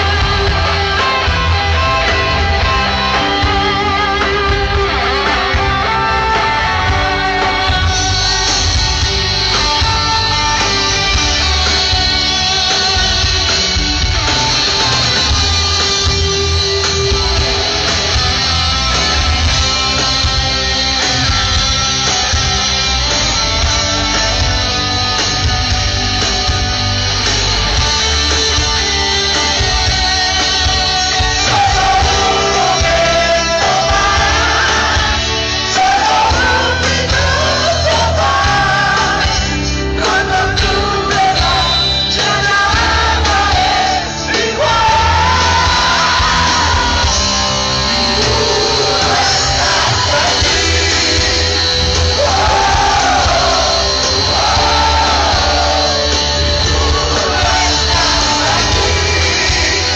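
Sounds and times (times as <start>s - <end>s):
heavy metal band playing live: 0.0s - 59.9s
person singing: 28.0s - 59.9s.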